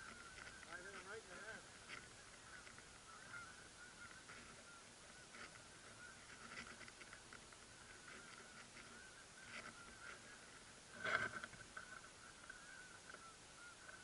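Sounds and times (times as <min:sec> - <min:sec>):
distant flock of geese honking: 0:00.0 - 0:14.0.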